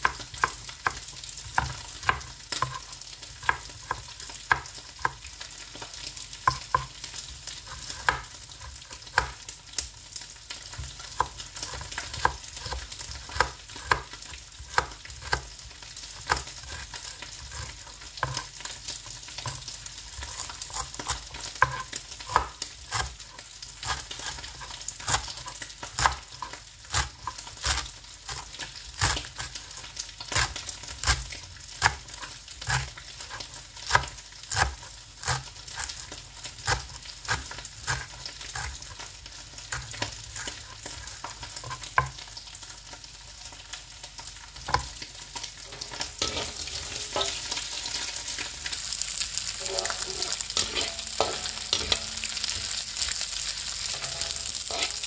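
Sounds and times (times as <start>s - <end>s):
knife chopping on cutting board: 0.0s - 5.2s, 7.7s - 9.4s, 10.8s - 15.5s, 16.2s - 18.5s, 19.4s - 39.0s, 44.7s - 44.9s
fish sizzling in oil: 0.0s - 55.0s.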